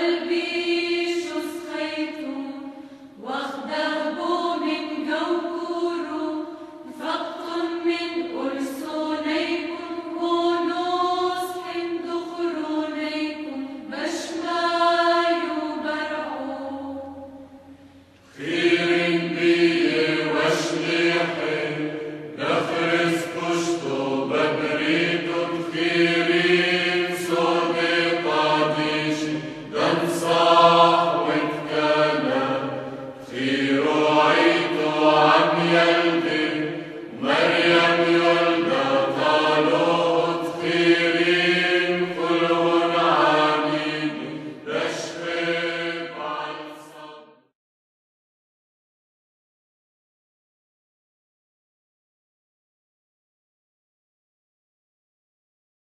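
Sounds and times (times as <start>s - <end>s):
hymn chanting: 18.4s - 47.3s.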